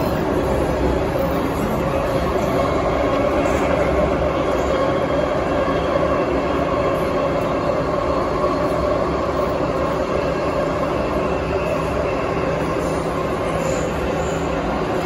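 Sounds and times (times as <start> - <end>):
steady train tone: 0.0 - 15.0
train wheels rumbling on rail: 0.0 - 15.0.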